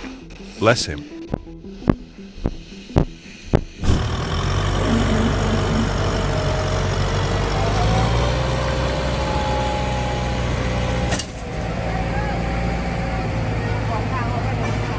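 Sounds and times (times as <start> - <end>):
truck engine running: 3.8 - 14.9.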